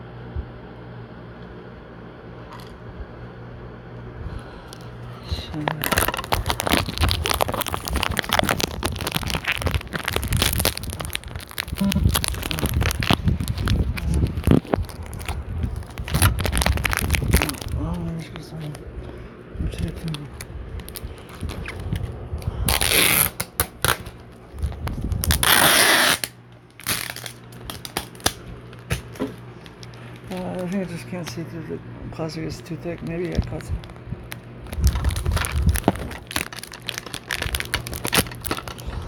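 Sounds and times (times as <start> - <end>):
low rumble: 2.6 - 23.0, 24.0 - 25.5, 33.4 - 39.0
thick plastic crinkling: 5.5 - 18.8, 19.7 - 31.5, 32.6 - 39.0.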